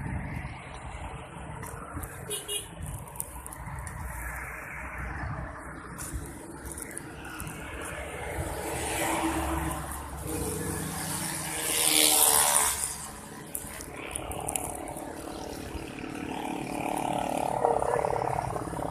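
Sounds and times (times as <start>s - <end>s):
city road traffic: 0.0s - 18.9s
vehicle passing close by: 3.9s - 18.9s.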